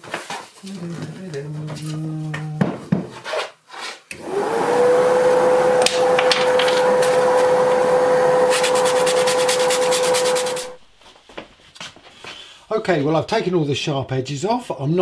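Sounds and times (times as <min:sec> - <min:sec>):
dust extractor motor whine: 0:04.1 - 0:10.8
sanding block scratching wood: 0:08.4 - 0:10.8.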